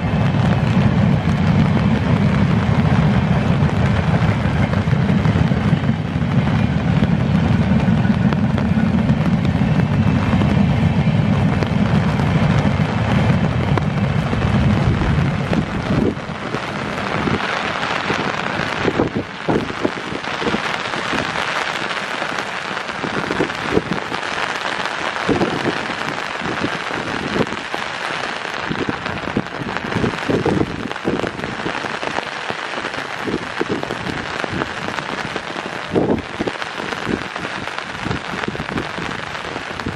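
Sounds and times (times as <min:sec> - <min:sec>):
low rumble: 0:00.0 - 0:24.2
heavy rain: 0:00.0 - 0:39.9.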